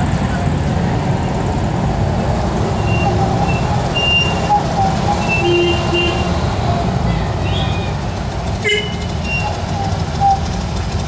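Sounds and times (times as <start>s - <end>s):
cars driving past: 0.0s - 11.0s.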